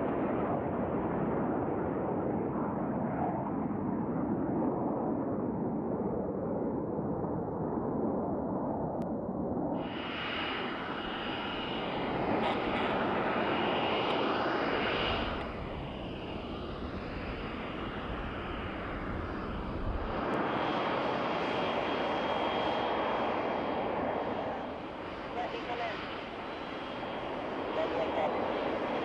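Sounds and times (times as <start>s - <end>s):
jet engine running: 9.8s - 29.0s.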